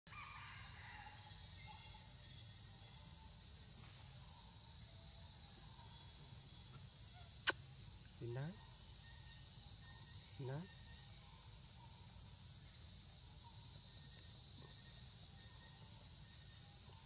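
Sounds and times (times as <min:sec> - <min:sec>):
insects shrilling: 0:06.0 - 0:11.8.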